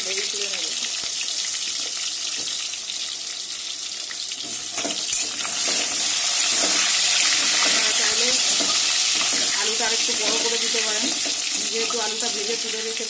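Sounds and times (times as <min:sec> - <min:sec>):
potatoes sizzling in oil: 0:00.0 - 0:13.0
metal spatula scraping: 0:04.4 - 0:12.4.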